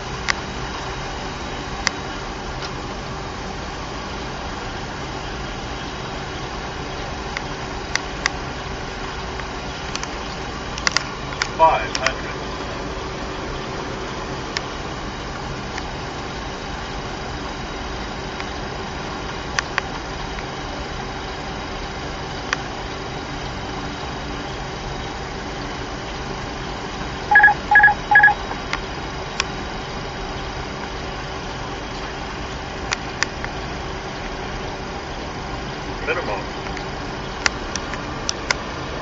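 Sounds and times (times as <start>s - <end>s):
cockpit airflow and engine hum: 0.0s - 39.0s
faint steady tone: 19.7s - 32.8s
short electronic beeps: 27.3s - 28.4s.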